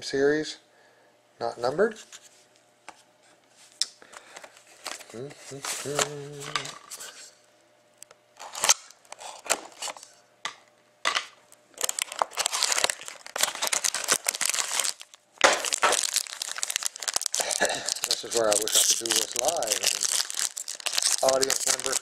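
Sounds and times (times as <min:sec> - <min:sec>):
foil wrapper crinkling and tearing: 0:08.4 - 0:10.1, 0:11.8 - 0:22.0.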